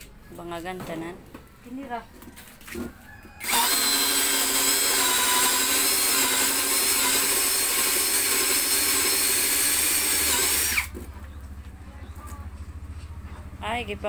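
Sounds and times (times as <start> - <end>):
cordless drill boring into wood: 3.4 - 11.0.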